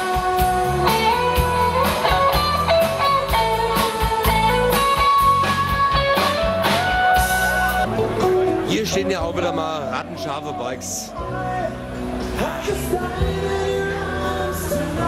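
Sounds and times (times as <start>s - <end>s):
steady drum beat: 0.0s - 7.9s
bass: 0.0s - 15.0s
electric guitar melody: 0.0s - 15.0s
keyboard: 0.0s - 15.0s.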